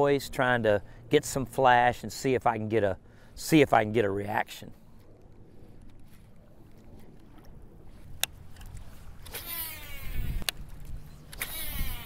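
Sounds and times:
wind: 0.0s - 12.0s
fishing reel spool whirring: 8.0s - 12.0s
reel click: 8.1s - 12.0s.

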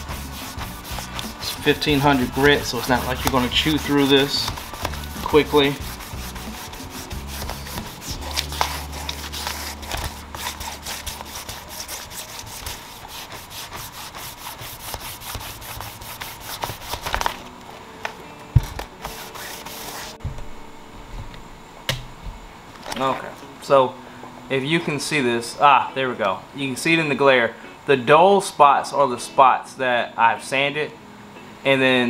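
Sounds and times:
sandpaper rubbing on wood: 0.0s - 17.3s, 19.0s - 20.2s.

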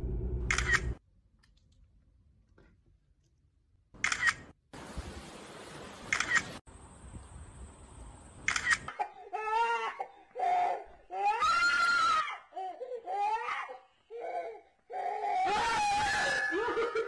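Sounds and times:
camera shutter clicks: 0.5s - 1.0s, 4.0s - 4.5s, 6.1s - 6.5s, 8.4s - 8.9s.

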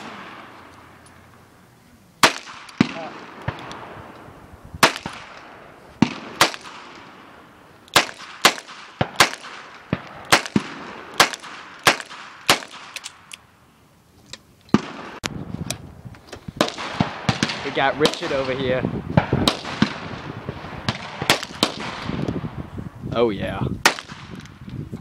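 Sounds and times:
pistol shots: 2.2s - 3.9s, 4.8s - 13.3s, 14.7s - 15.3s, 16.6s - 22.2s, 23.8s - 24.4s.

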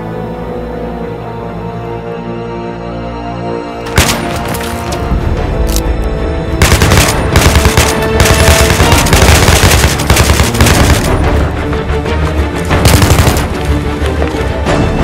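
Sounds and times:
dramatic film score: 0.0s - 15.0s
rapid automatic gunfire: 6.6s - 11.3s, 12.8s - 13.6s.

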